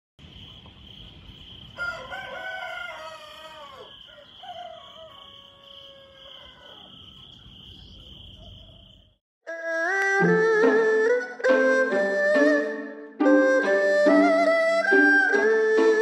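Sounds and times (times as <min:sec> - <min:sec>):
rooster crowing: 0:01.7 - 0:09.0.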